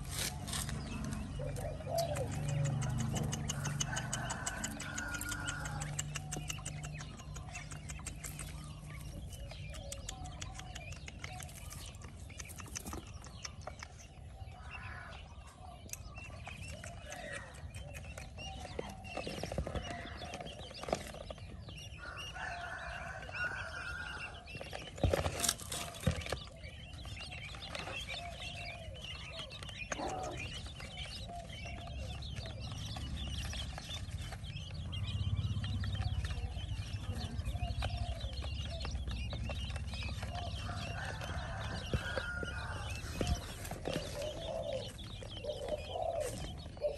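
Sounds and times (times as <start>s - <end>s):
chicks peeping and chirping: 0.0s - 46.9s.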